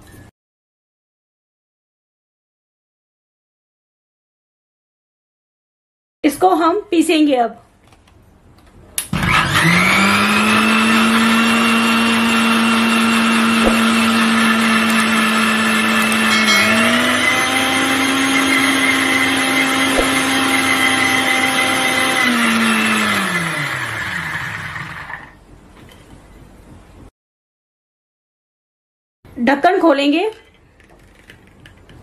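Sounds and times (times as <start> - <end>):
mixer grinder motor whining: 9.2 - 25.4.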